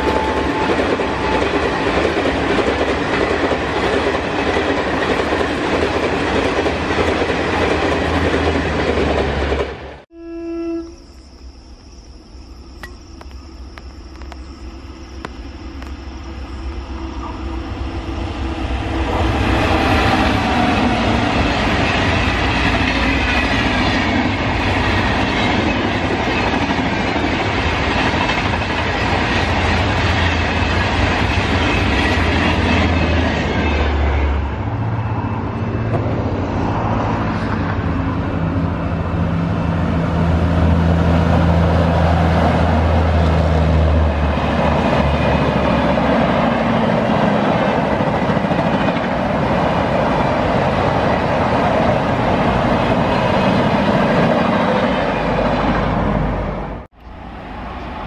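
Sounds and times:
train wheels clickety-clack: 0.0s - 9.9s, 19.4s - 34.3s, 42.1s - 55.9s
electric train humming past: 0.0s - 58.0s.

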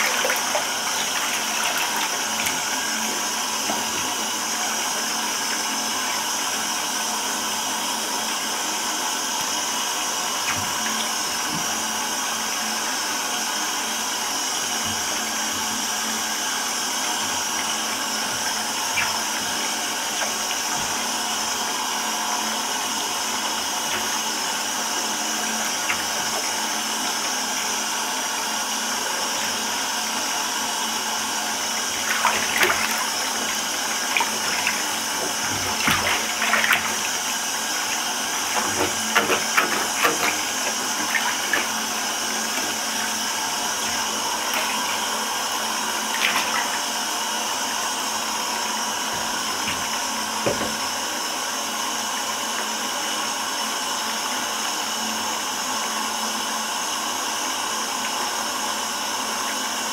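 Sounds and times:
water running into bathtub: 0.0s - 54.7s
feet splashing in water: 31.9s - 37.3s, 38.4s - 41.8s, 46.1s - 46.9s.

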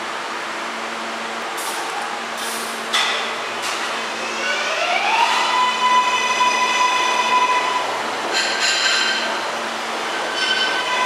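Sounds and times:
subway train motor whining: 3.4s - 8.3s.

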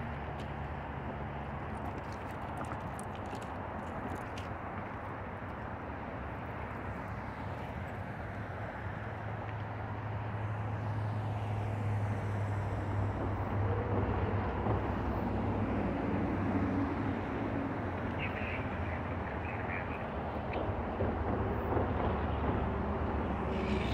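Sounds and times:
distant engine humming: 9.8s - 23.9s.

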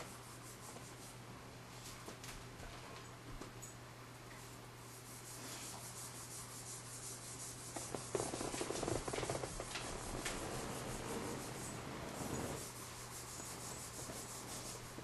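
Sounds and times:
low steady hum: 0.0s - 15.0s
hands rubbing on camera: 4.9s - 15.0s.

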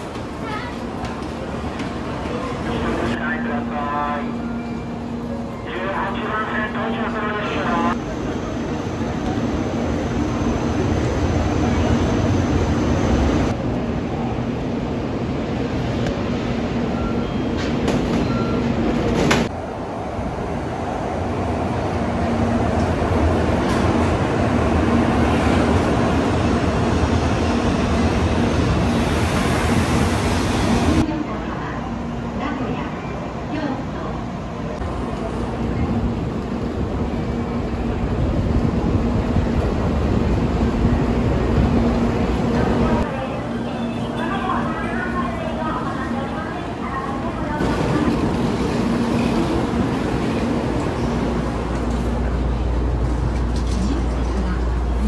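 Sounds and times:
train pulling in rushing: 0.0s - 31.1s
busy station ambience: 0.0s - 55.0s.

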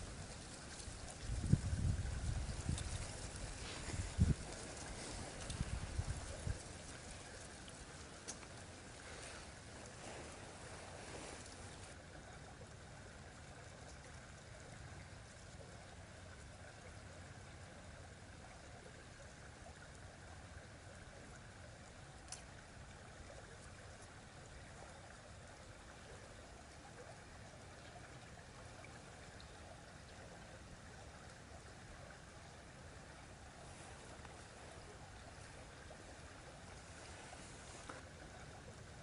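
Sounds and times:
faint rustling: 0.0s - 12.0s, 33.3s - 38.6s
faint rushing hiss: 0.0s - 19.3s, 19.9s - 39.0s.

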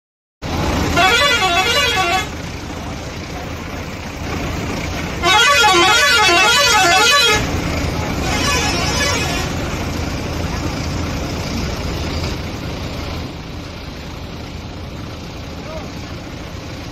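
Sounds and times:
musical bus horn warbling tune: 0.6s - 2.6s, 4.9s - 9.9s.

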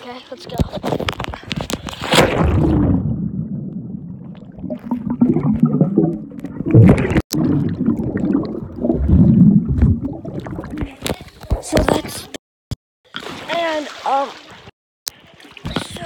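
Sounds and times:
muffled underwater bubbling: 2.3s - 11.2s.

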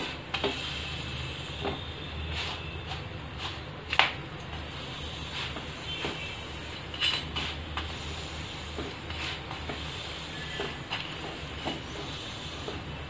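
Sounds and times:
spatula scraping griddle: 0.0s - 3.7s, 4.5s - 13.0s
flatbread hissing on griddle: 4.7s - 12.9s.

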